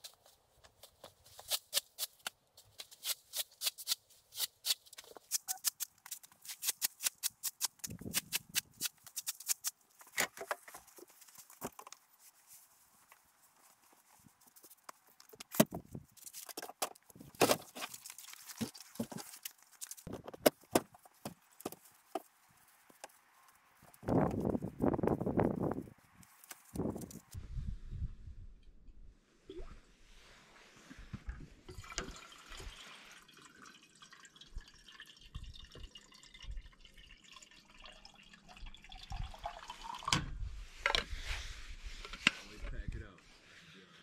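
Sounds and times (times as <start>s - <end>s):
broom sweeping a tarp: 30.0s - 31.1s, 40.6s - 42.6s, 43.2s - 44.0s.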